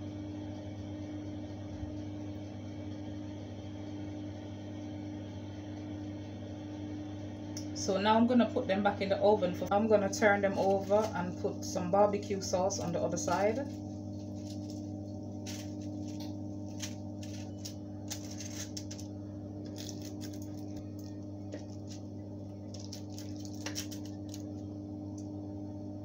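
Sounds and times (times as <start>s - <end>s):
steady low hum: 0.0s - 26.0s
fork clicking on foil: 15.5s - 19.1s, 22.8s - 24.4s.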